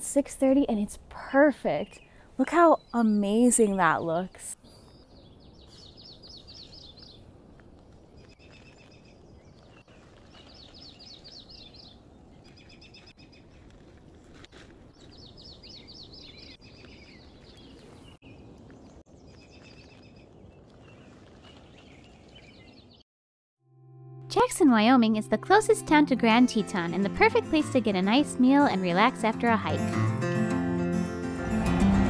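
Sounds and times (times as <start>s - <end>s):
songbirds singing trilled phrases: 4.9s - 7.2s, 10.4s - 13.4s, 15.1s - 18.4s.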